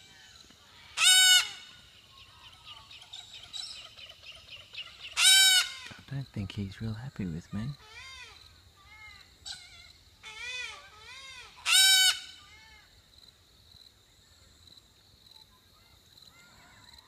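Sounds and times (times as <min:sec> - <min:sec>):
cockatoo squawking: 0:00.9 - 0:01.7, 0:04.8 - 0:05.9, 0:09.5 - 0:12.4.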